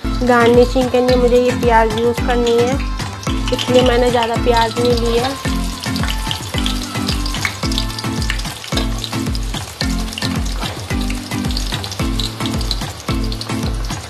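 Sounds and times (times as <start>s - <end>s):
low musical beat: 0.0s - 14.0s
onions sizzling in hot oil: 0.0s - 14.0s.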